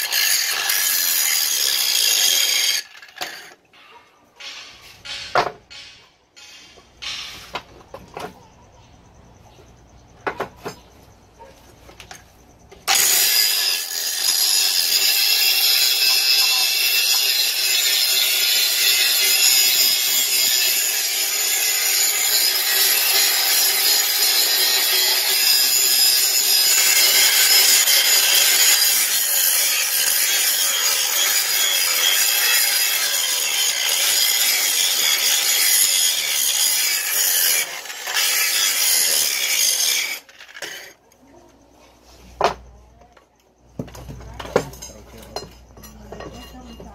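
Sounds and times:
angle grinder grinding steel: 0.0 - 7.5, 12.9 - 41.0
knocks and clicks: 3.7 - 8.4.

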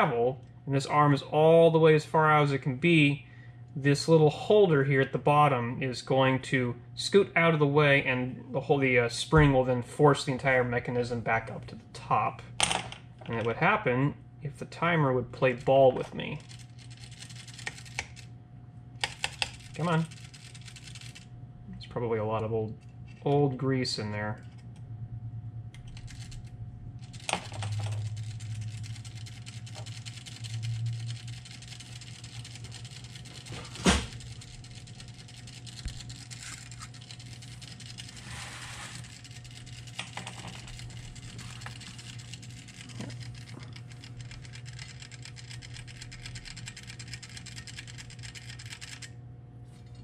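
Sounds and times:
low hum: 0.0 - 50.0
clockwork timer ticking: 27.1 - 38.2, 39.0 - 49.1.

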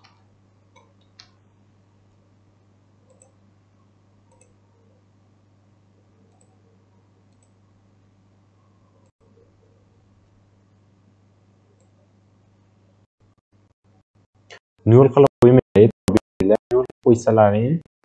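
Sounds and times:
computer mouse clicks: 0.0 - 1.4, 3.0 - 3.4, 4.3 - 4.6, 6.2 - 7.6
steady low hum: 0.0 - 17.9.

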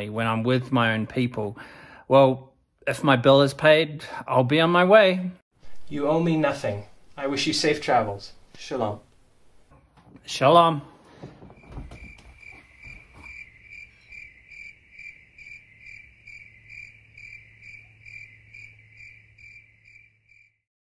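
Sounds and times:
soft knocks: 11.1 - 13.4
cricket chirping: 11.6 - 20.6.

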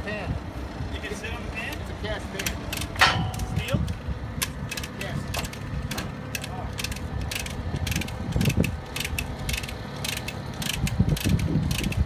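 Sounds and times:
ratchet wrench clicking: 4.4 - 5.6, 6.3 - 12.0.

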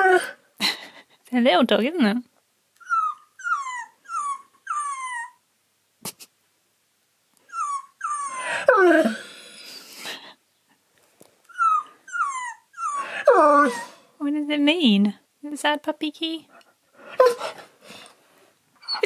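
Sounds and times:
husky whining: 0.0 - 0.5, 2.8 - 5.5, 7.4 - 9.7, 11.5 - 14.2, 17.0 - 18.1, 18.8 - 19.0
recorded small dog yips: 2.8 - 5.4, 7.4 - 9.2, 11.5 - 14.0, 18.8 - 19.0.

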